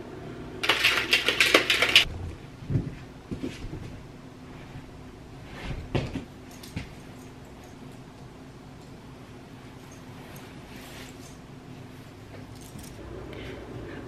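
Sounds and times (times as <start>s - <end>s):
plastic shaker bottle rattling: 0.6s - 2.1s.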